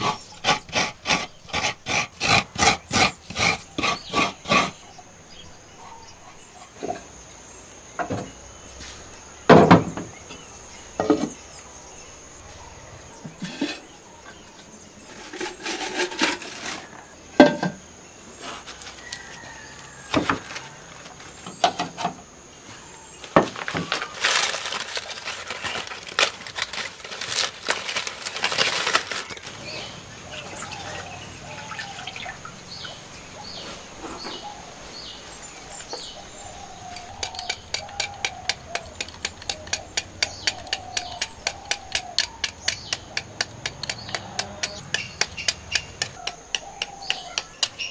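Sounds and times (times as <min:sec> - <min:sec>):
knife scraping into clay bowl: 0:00.0 - 0:04.8
small birds chirping: 0:00.0 - 0:15.8, 0:20.6 - 0:47.9
dry leaf wrapping crackling: 0:23.2 - 0:31.0.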